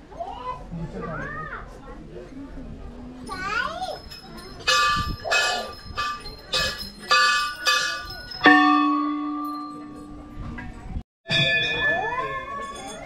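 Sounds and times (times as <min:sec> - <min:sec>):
small bell ringing: 0:03.3 - 0:10.4, 0:11.3 - 0:13.0
deep bell ringing: 0:04.2 - 0:10.6, 0:11.3 - 0:13.0.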